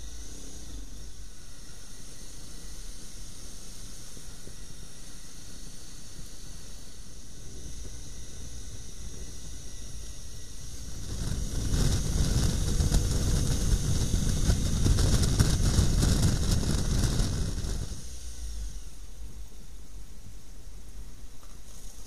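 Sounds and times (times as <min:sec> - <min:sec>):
wind rush over microphone: 0:03.8 - 0:18.9
motorcycle engine running: 0:10.5 - 0:18.1.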